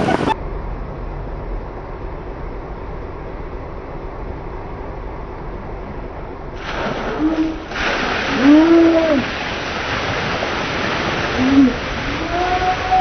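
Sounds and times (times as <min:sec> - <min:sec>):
water pouring in rushing splash: 0:06.6 - 0:13.0.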